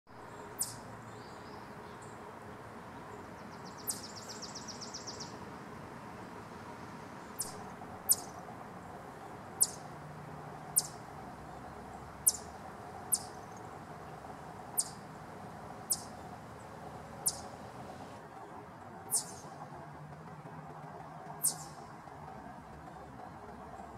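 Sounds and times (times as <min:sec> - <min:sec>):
chipmunk alarm call: 0:00.6 - 0:00.8, 0:07.4 - 0:08.3, 0:09.6 - 0:10.0, 0:10.7 - 0:11.0, 0:12.2 - 0:12.5, 0:13.1 - 0:13.4, 0:14.8 - 0:15.1, 0:15.8 - 0:16.2, 0:17.2 - 0:17.8, 0:19.1 - 0:19.4, 0:21.4 - 0:21.7.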